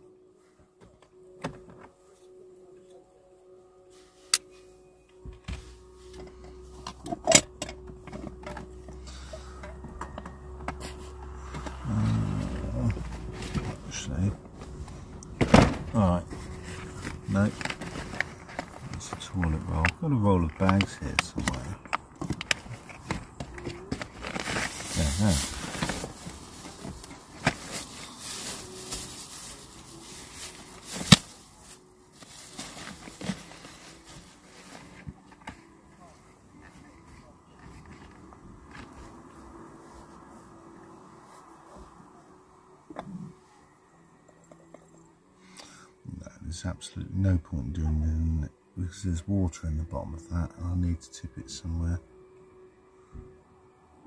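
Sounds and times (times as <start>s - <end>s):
objects rustling in a car: 3.9s - 45.1s.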